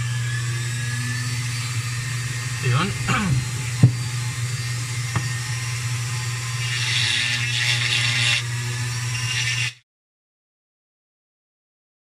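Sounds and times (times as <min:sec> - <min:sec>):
rotary tool engraving wood: 0:01.0 - 0:09.8.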